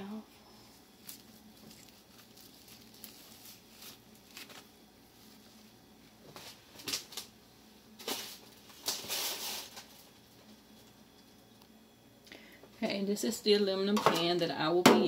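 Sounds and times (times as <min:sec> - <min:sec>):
crinkling and rustling: 0:00.8 - 0:11.3.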